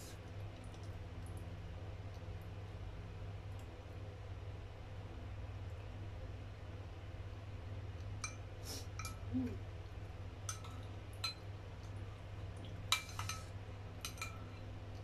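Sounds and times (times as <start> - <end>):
spoon clinking on porcelain bowl: 9.0 - 9.2, 10.5 - 11.5, 12.9 - 14.6.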